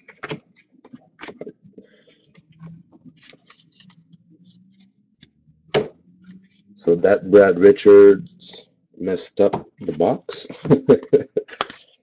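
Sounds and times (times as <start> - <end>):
faint low hum: 0.7 - 11.5
trading cards being flipped: 2.4 - 6.6.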